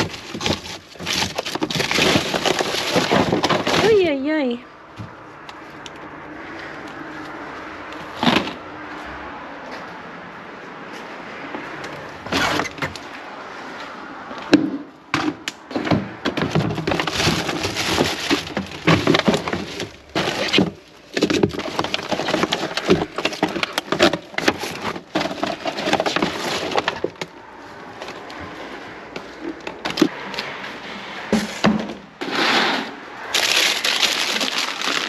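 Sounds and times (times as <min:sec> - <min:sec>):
plastic packaging crackling: 0:00.0 - 0:03.9, 0:16.7 - 0:27.2, 0:33.3 - 0:35.0.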